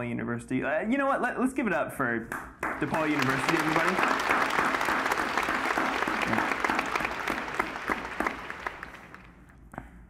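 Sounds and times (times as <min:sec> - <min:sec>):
audience applause: 0:02.6 - 0:09.4.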